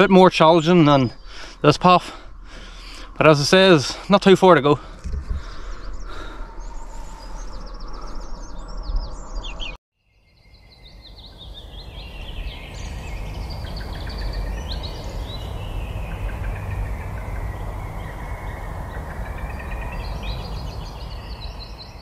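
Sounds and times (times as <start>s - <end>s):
small birds chirping: 0.0s - 22.0s
wind on microphone: 5.0s - 9.8s, 11.6s - 22.0s.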